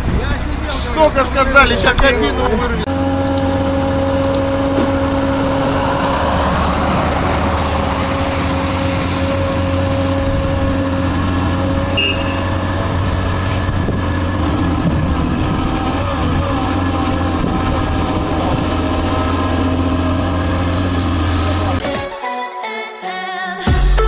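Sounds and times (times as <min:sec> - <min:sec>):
diesel machinery humming: 0:00.0 - 0:22.2
mouse clicks: 0:03.3 - 0:03.5, 0:04.2 - 0:04.4.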